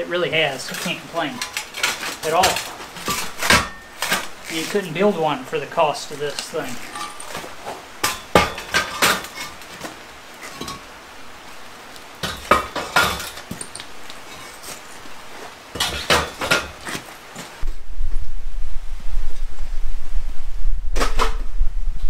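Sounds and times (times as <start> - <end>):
concrete blocks knocking and scraping: 0.2 - 5.4, 6.0 - 11.0, 12.2 - 17.6.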